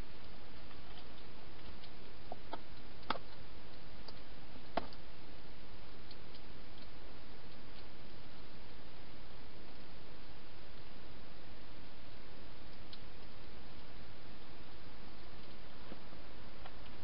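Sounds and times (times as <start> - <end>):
steady hiss: 0.0 - 17.0
hedgehog feeding clicks and ticks: 0.2 - 5.1, 5.8 - 8.8, 12.5 - 17.0.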